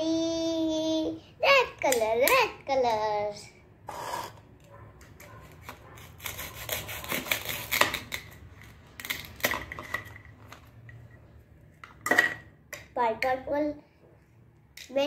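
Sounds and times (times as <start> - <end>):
plastic toy knife sawing: 5.2 - 8.3.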